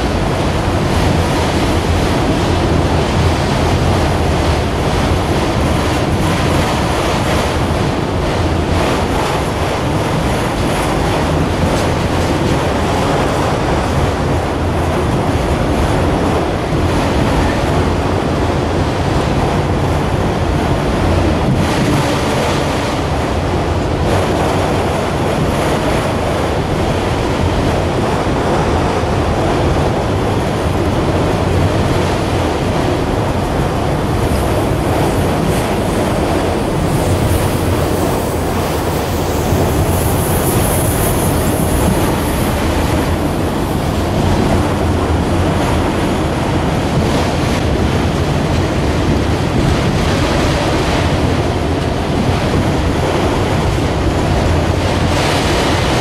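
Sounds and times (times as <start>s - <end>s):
steel train wheels rolling on rail: 0.0s - 56.0s.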